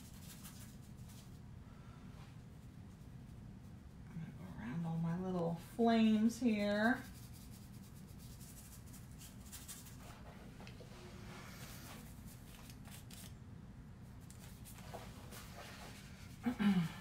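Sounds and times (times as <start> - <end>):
low steady hum: 0.0 - 17.0
paintbrush dabbing on paper: 6.4 - 10.4.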